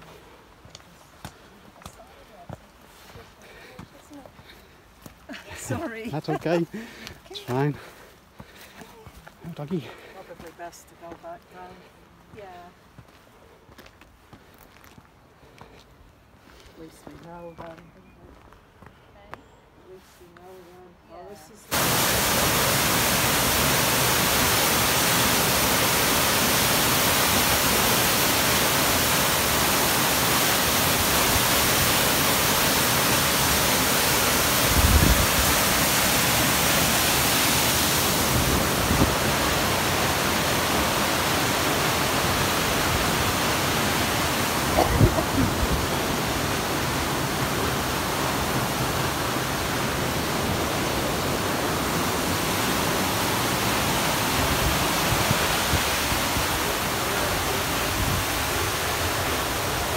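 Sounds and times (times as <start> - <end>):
waterfall rushing: 21.7 - 59.9.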